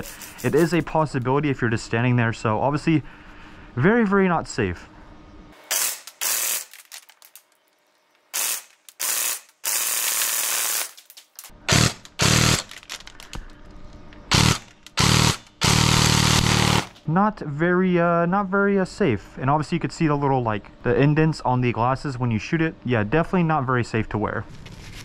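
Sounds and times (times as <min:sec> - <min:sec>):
airsoft gun firing bursts: 0:08.4 - 0:10.9, 0:11.7 - 0:12.6, 0:14.3 - 0:16.9.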